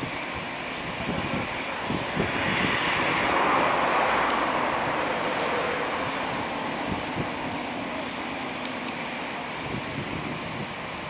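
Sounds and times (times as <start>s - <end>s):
distant jet engines at takeoff: 0.0s - 11.0s
wind bumps on microphone: 0.8s - 7.7s, 9.6s - 10.9s.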